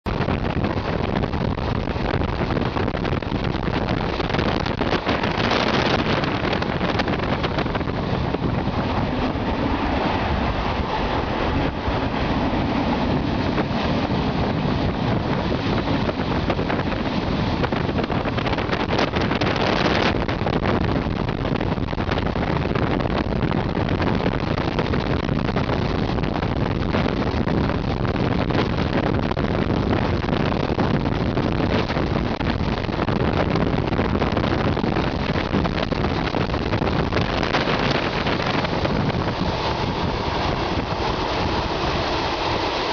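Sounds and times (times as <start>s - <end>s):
wind buffeting microphone: 0.0s - 42.9s
train wheels rumbling: 0.1s - 42.9s.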